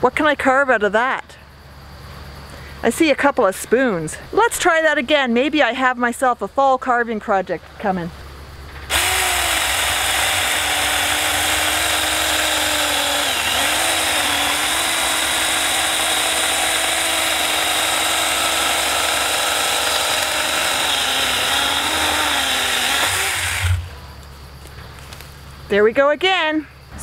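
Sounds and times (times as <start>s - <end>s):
electric chainsaw cutting wood: 8.9s - 23.9s.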